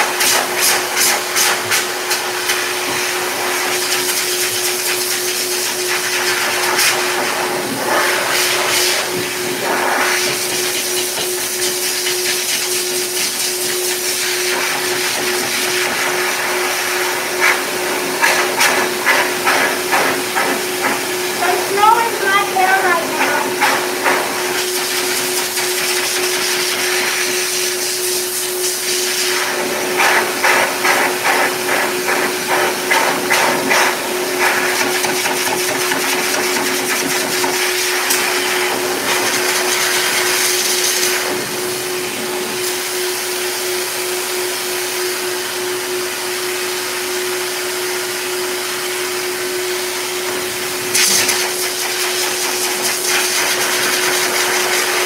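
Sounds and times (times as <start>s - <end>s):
dryer motor whine: 0.0s - 55.0s.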